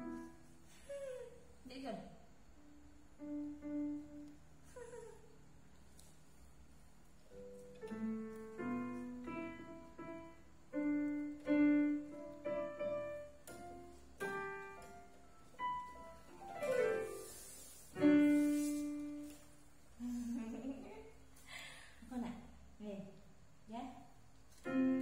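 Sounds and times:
electronic keyboard piano notes: 0.0s - 0.3s.

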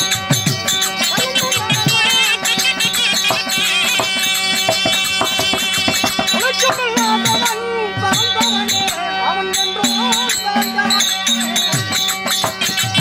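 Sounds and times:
wavering melody line: 0.0s - 13.0s.

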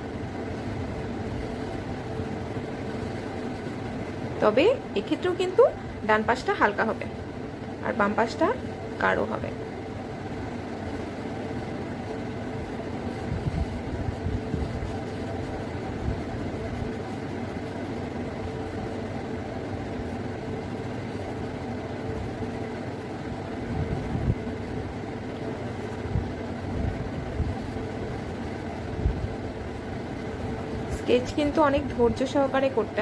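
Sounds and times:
mechanical hum: 0.0s - 33.0s.

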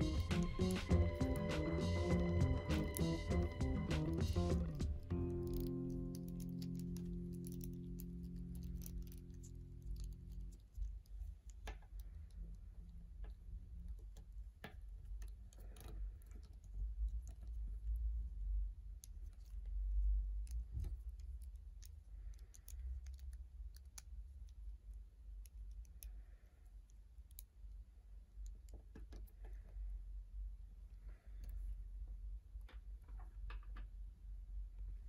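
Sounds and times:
plastic action figure joints clicking: 5.1s - 10.7s.

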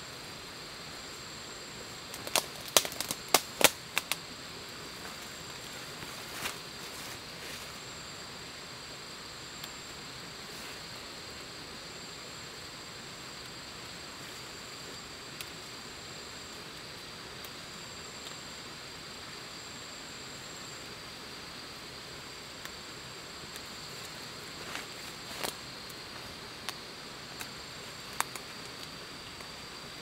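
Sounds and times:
leaves rustling: 0.0s - 8.2s, 21.5s - 30.0s
stems snapping: 2.1s - 4.2s, 25.3s - 25.6s, 27.4s - 28.9s.

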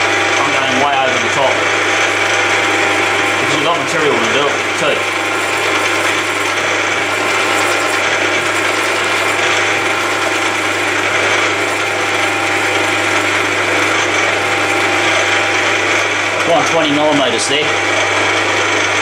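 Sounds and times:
drill whine and hum: 0.0s - 19.0s.

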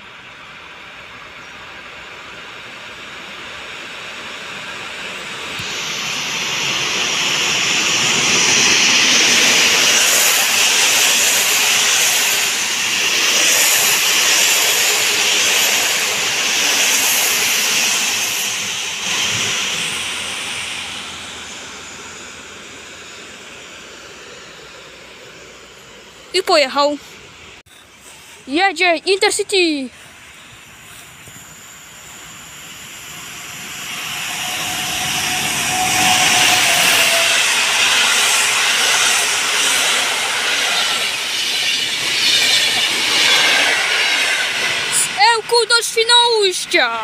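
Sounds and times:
train wheels clattering on rail: 5.1s - 21.1s, 33.8s - 45.0s.

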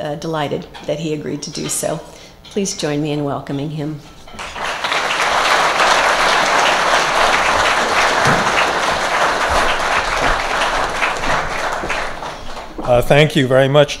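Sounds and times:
crowd applauding: 4.4s - 13.3s.

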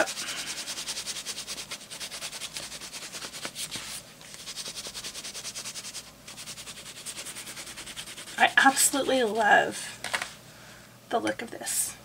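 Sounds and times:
crayon scratching on paper: 0.0s - 3.6s, 4.4s - 9.6s.

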